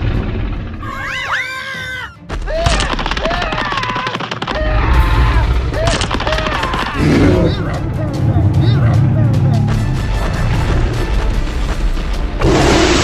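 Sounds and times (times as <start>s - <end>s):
rapid gunfire crackling: 2.5s - 4.9s, 5.6s - 7.2s.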